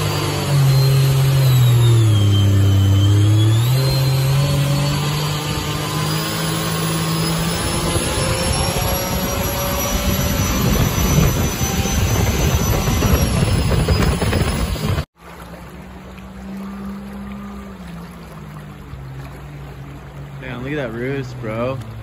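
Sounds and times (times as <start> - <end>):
rush of spray and wind: 0.0 - 15.6
jet boat engine at speed: 0.0 - 22.0.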